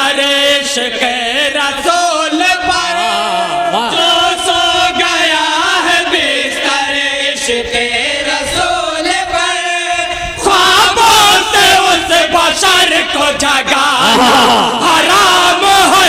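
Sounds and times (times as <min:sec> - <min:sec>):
men chanting a devotional poem: 0:00.0 - 0:16.0.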